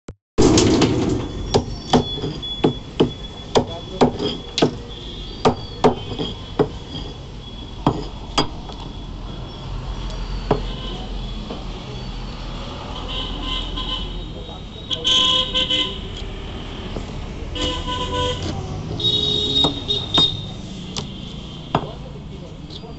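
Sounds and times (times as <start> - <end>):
knife chopping on wooden block: 1.6 - 4.8, 5.4 - 7.1, 7.8 - 8.6, 19.6 - 20.4.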